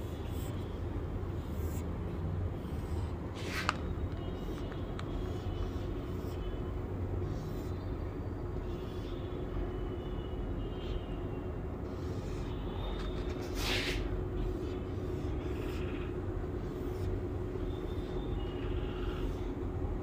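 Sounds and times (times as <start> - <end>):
marker scratching on whiteboard: 0.0 - 9.4, 11.9 - 19.6.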